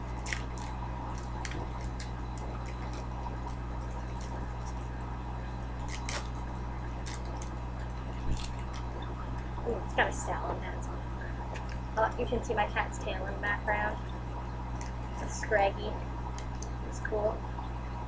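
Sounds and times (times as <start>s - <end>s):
foil pack crinkling and tearing: 0.0s - 4.9s, 5.8s - 9.0s
steady low hum: 0.0s - 18.0s.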